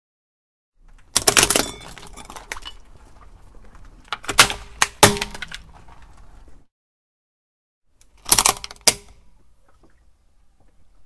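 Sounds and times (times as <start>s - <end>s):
plastic utensils cracking under tyre: 0.8s - 3.0s, 3.6s - 6.4s, 8.0s - 9.2s.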